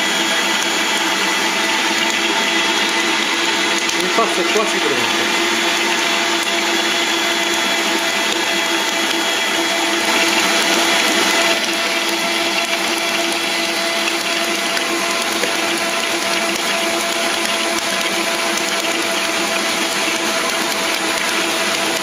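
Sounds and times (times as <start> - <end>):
stand mixer motor whining: 0.0 - 22.0.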